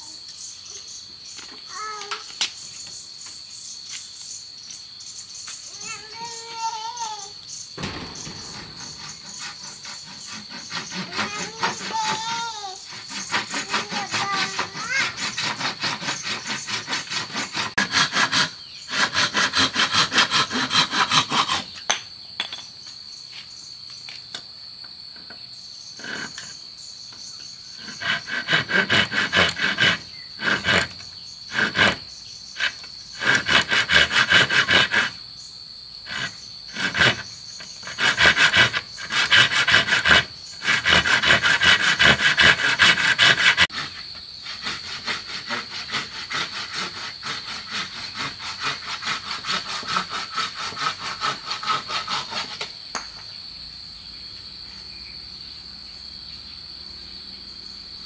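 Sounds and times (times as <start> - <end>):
high-pitched insect drone: 0.0 - 24.2, 25.1 - 58.0
hand tool sawing wood: 7.8 - 21.9, 26.0 - 26.6, 27.7 - 35.2, 36.1 - 52.8.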